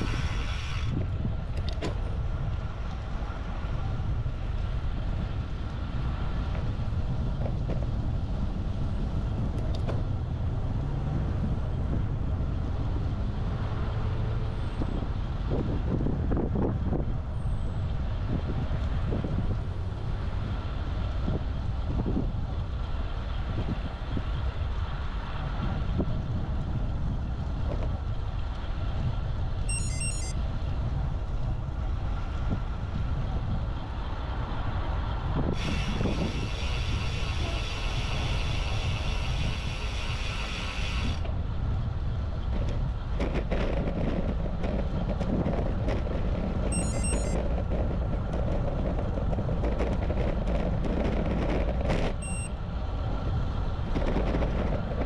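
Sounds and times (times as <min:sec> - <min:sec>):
tyre and road noise: 0:00.0 - 0:55.0
wind on camera microphone: 0:00.0 - 0:55.0
high-pitched chirps: 0:29.7 - 0:30.3, 0:46.7 - 0:47.4.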